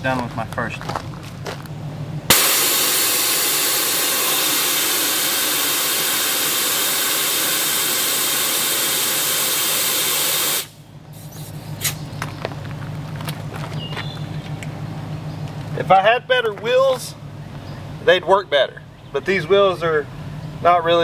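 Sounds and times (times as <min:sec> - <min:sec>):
air hissing from tire valve: 0:02.3 - 0:12.1.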